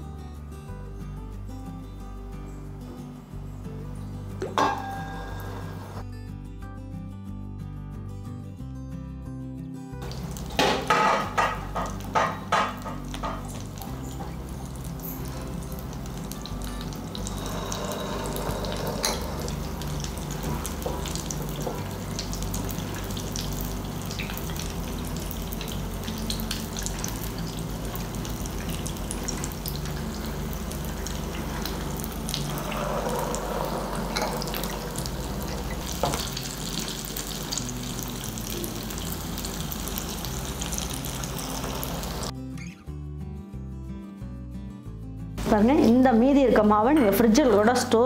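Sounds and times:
dumplings deep-frying in oil: 10.0 - 42.3.

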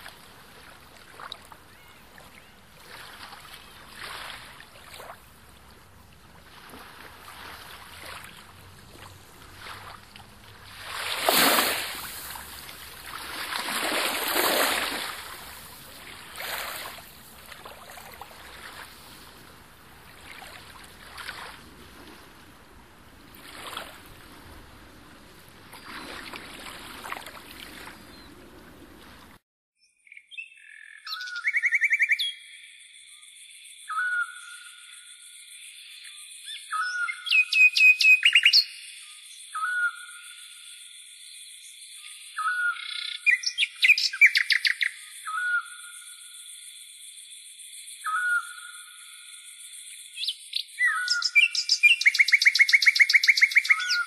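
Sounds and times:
waves washing over pebbles: 2.8 - 29.4
bird whistled calls and trill: 29.8 - 32.5, 33.9 - 34.8, 36.0 - 40.4, 42.0 - 46.2, 48.0 - 48.9, 50.2 - 54.0.

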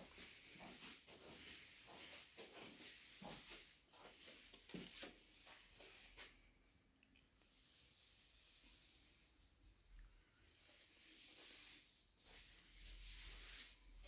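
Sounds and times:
soft footsteps on carpet: 0.0 - 6.6.

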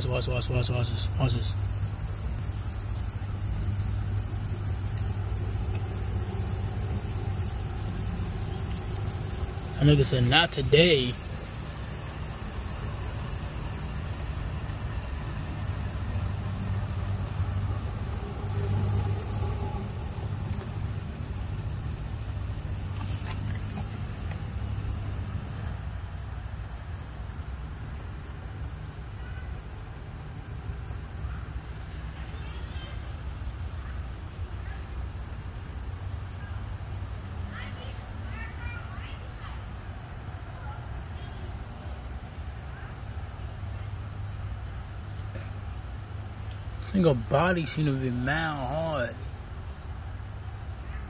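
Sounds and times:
crickets trilling: 0.0 - 51.0
low steady rumble: 0.8 - 26.2.

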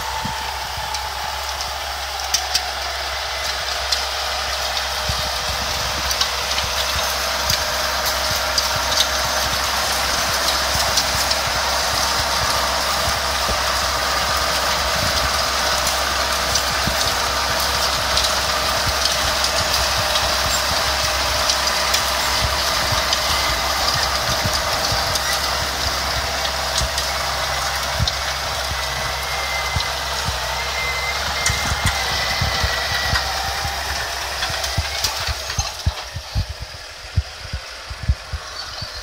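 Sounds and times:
soil packer rumbling with clicks: 0.0 - 39.0
tractor engine running: 0.0 - 39.0.

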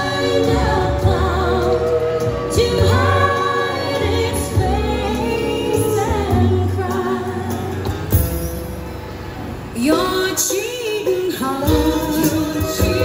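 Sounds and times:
woman singing with backing music: 0.0 - 8.2, 9.8 - 13.0.

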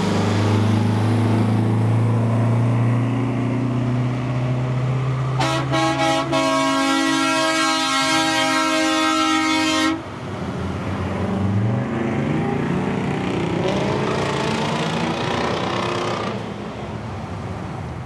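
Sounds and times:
passing diesel truck engines: 0.0 - 18.0
truck air horn blast: 5.4 - 10.1.

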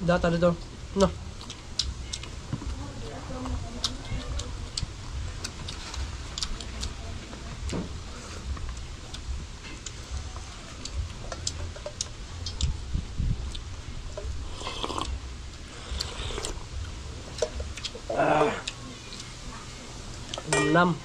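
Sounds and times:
chewing: 1.4 - 2.6, 3.4 - 12.8, 13.5 - 19.6
wind rumble on microphone: 7.1 - 15.5
slurping soup: 14.4 - 15.1, 15.7 - 16.6.

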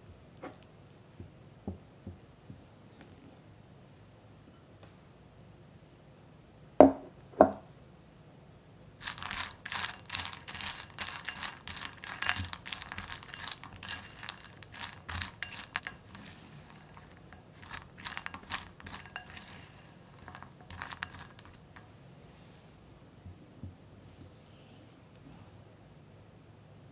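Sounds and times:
nuts clicking: 9.0 - 21.8
spatula scraping nuts in glass bowl: 9.0 - 21.9.

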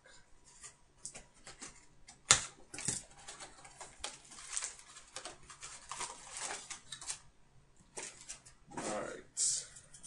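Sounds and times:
plastic wrap crinkling: 1.4 - 7.3, 7.9 - 8.6.

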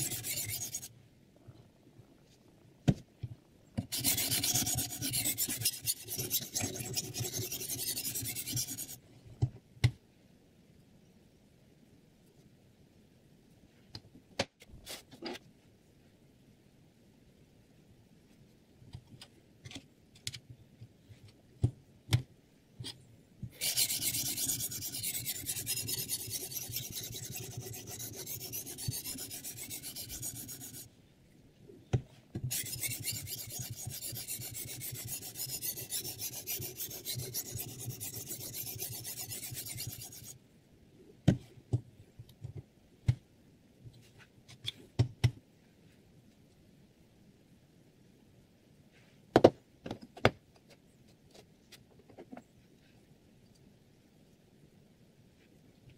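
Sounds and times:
sharpening stone scraping knife: 0.0 - 0.9, 3.9 - 9.0, 23.6 - 30.9, 32.5 - 40.4.

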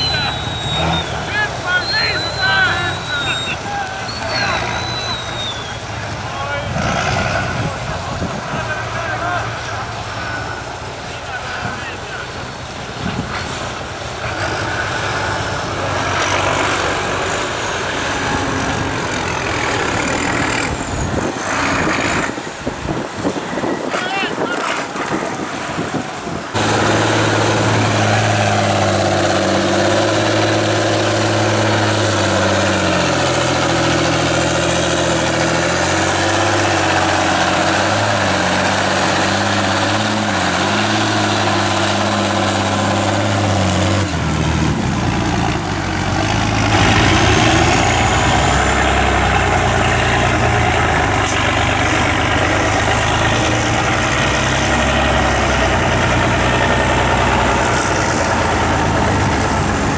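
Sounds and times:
truck engines revving in mud: 0.0 - 59.9
low rough engine: 24.6 - 59.9.

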